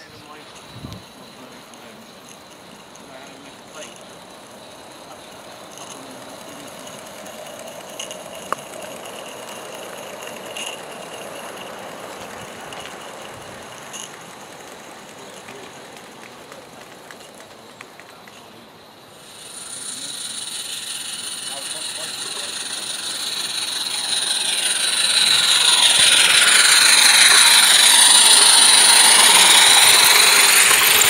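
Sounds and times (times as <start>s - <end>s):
steam hiss: 0.0s - 31.0s
wheels rolling on track: 0.0s - 31.0s
loud high hiss: 19.0s - 31.0s.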